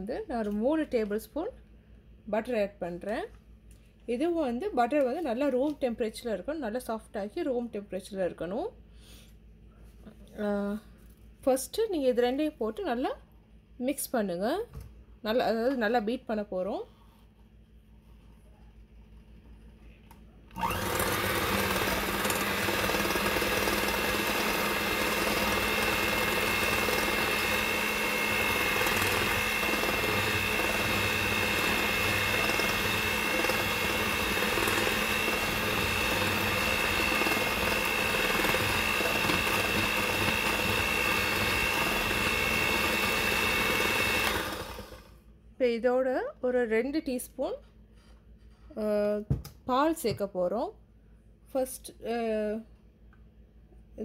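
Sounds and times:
electric hand mixer whining: 0:20.6 - 0:45.2.

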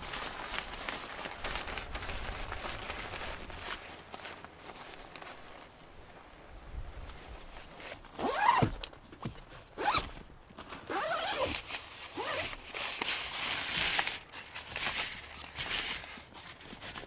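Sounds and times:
fabric rustling: 0:00.0 - 0:17.0
zip being pulled: 0:08.1 - 0:08.8, 0:09.8 - 0:10.1, 0:10.8 - 0:12.6.

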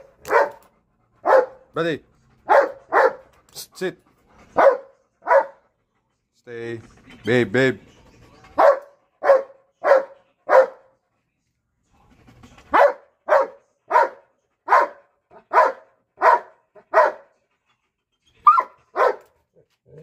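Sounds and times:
dog barking: 0:00.0 - 0:01.7, 0:02.4 - 0:03.3, 0:04.6 - 0:05.6, 0:08.6 - 0:10.9, 0:12.7 - 0:17.3, 0:18.4 - 0:19.4.

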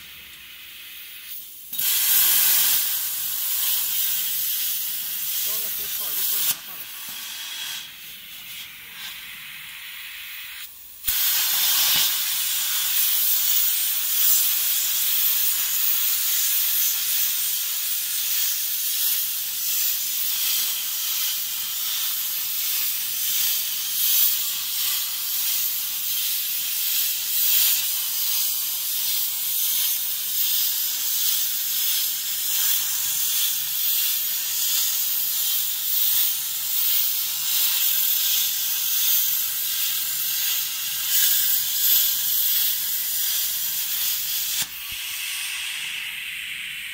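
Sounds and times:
plasma torch hissing: 0:00.0 - 0:46.9.

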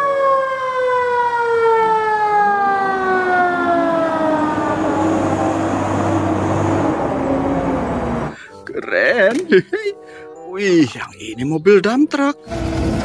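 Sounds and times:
fire engine siren winding down: 0:00.0 - 0:08.4
road noise: 0:00.0 - 0:10.4, 0:12.4 - 0:13.0
truck engine rumble: 0:01.1 - 0:08.7, 0:12.5 - 0:13.0.

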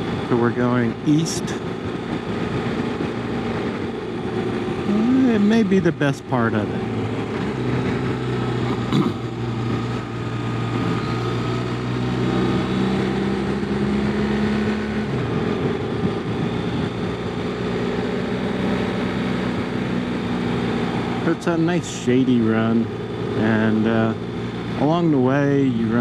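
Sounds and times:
wind noise: 0:00.0 - 0:06.0, 0:13.4 - 0:18.3
motorcycle engine running: 0:00.0 - 0:26.0
road noise: 0:00.0 - 0:26.0.

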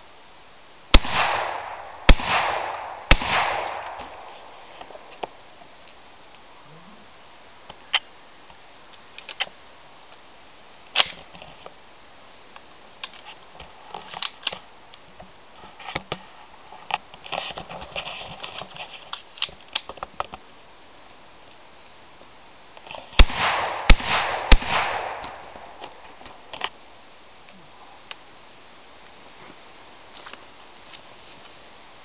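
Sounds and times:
sharp clicks and cracks: 0:00.9 - 0:06.0, 0:08.9 - 0:09.6, 0:10.7 - 0:11.8, 0:12.6 - 0:15.0, 0:16.8 - 0:20.4, 0:22.8 - 0:26.8.

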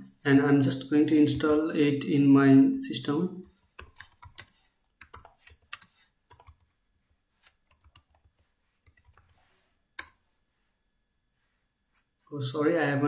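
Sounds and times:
faint keyboard typing: 0:03.4 - 0:06.8, 0:07.4 - 0:10.2.

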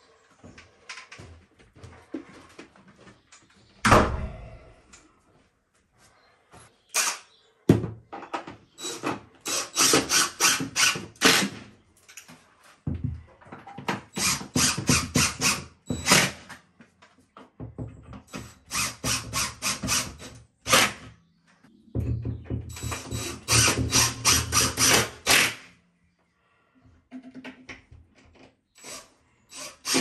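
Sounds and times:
cordless drill driving screws: 0:08.8 - 0:11.6, 0:14.1 - 0:16.5, 0:18.3 - 0:21.0, 0:22.7 - 0:25.7, 0:28.8 - 0:30.0.

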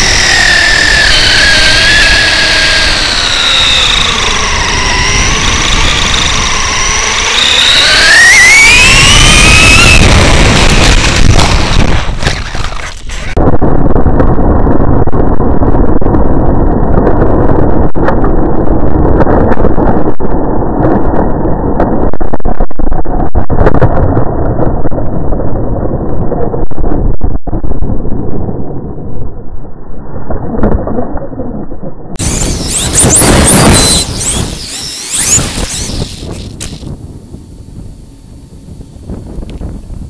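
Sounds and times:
electric motor whine: 0:00.0 - 0:13.4, 0:32.2 - 0:37.0
wind buffeting microphone: 0:00.0 - 0:29.4, 0:32.1 - 0:40.0.

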